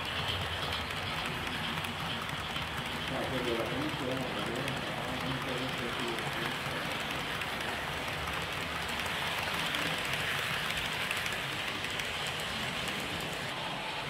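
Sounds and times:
model train wheels rattling on rails: 0.0s - 14.0s.

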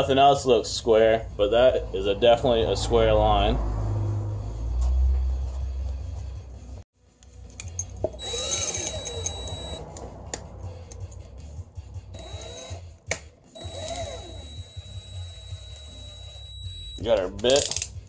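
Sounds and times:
cordless drill whirring: 8.2s - 9.8s, 12.2s - 12.8s, 13.6s - 17.0s
drill clicks: 8.2s - 9.8s, 12.2s - 12.8s, 13.5s - 17.9s.

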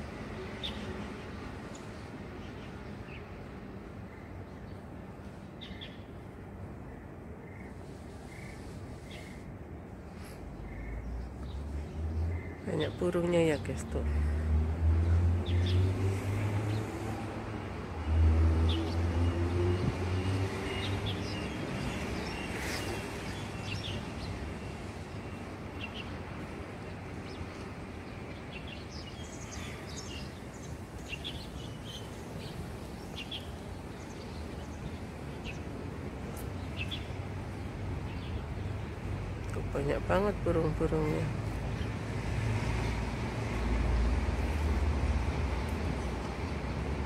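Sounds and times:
background traffic noise: 0.0s - 47.0s
passing vehicle engine hum: 11.6s - 23.6s, 37.1s - 47.0s
birds chirping: 20.6s - 39.0s.

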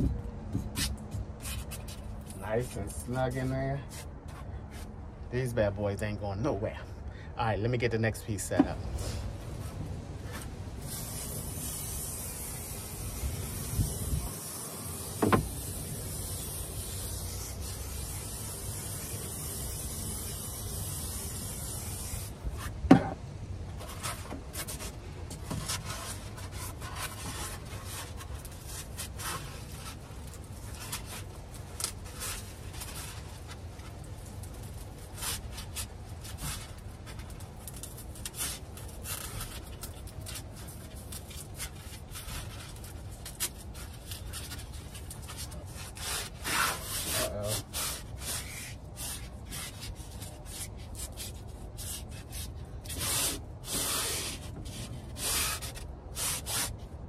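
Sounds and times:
foam board scraping and rubbing: 8.6s - 56.9s
aerosol spray can hissing: 10.8s - 22.4s.

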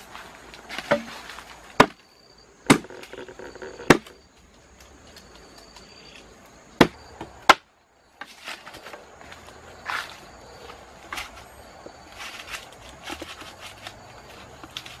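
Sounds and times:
sharp knocks: 2.7s - 3.0s.

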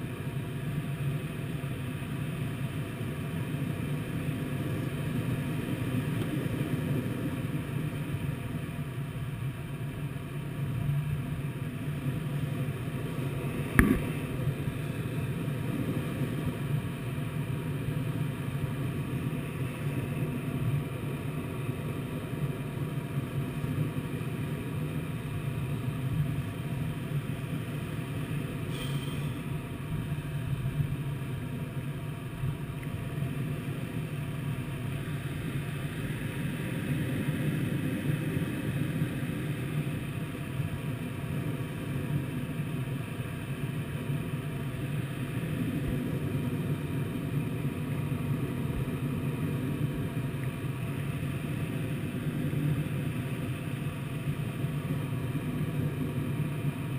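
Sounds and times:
airflow rushing around canopy: 0.0s - 9.8s, 10.6s - 56.9s
sharp knock: 13.8s - 14.1s.

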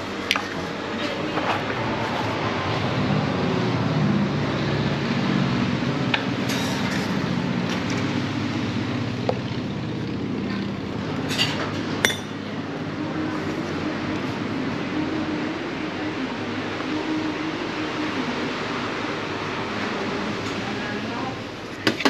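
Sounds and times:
cups and lids clinking: 11.3s - 12.4s.

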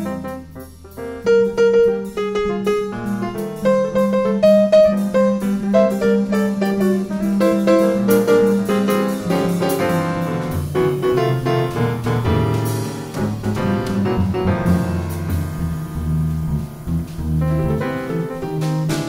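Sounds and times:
bass line: 0.0s - 19.0s
piano playing: 0.0s - 19.0s.

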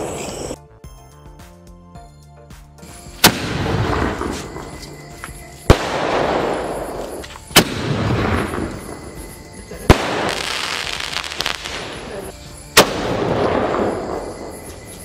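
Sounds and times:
firework crackling: 0.0s - 0.6s, 3.1s - 15.0s
firework bangs: 3.2s - 5.0s, 5.6s - 14.7s.

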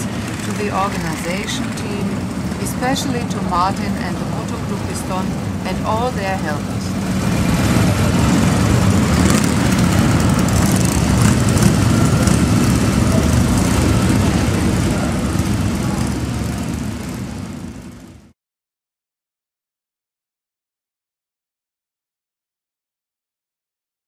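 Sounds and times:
motorcycle engines idling: 0.0s - 18.2s.

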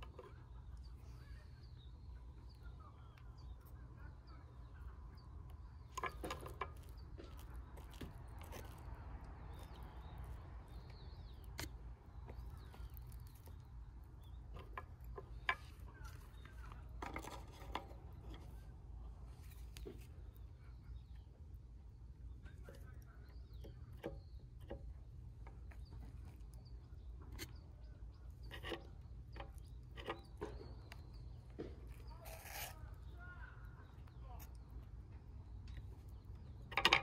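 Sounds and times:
faint bird chirps: 0.0s - 16.9s
low outdoor rumble: 0.0s - 37.0s.

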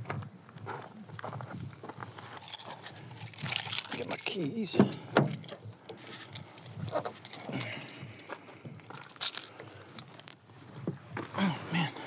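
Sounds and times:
keys jingling: 2.3s - 9.7s.

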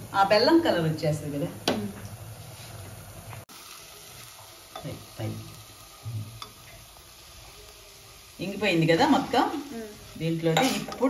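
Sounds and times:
food sizzling softly: 0.0s - 11.0s
spatula stirring: 10.3s - 11.0s.

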